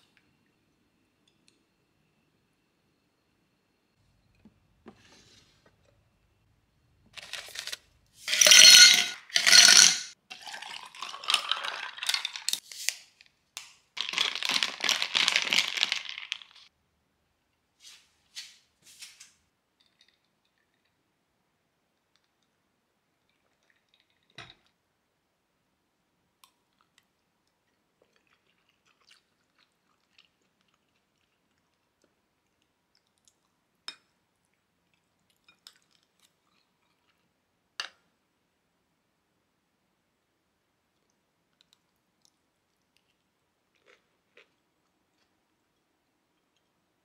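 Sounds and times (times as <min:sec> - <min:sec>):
plastic pouches rustling and crinkling: 0:07.1 - 0:07.8, 0:14.0 - 0:16.7.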